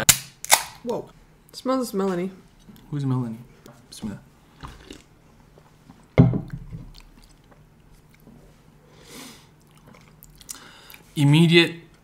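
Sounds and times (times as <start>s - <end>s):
person sipping and swallowing: 4.6s - 5.2s, 9.5s - 11.1s.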